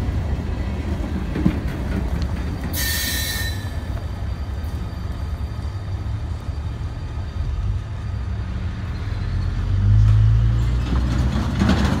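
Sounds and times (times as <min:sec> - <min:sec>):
freight train wheels rumbling: 0:00.0 - 0:12.0.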